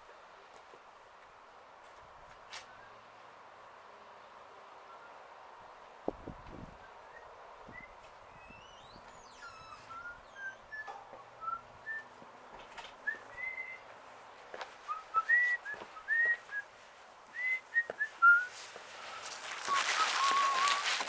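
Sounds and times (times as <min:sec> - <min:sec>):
sliding whistled notes: 0:07.8 - 0:12.1, 0:17.4 - 0:21.0.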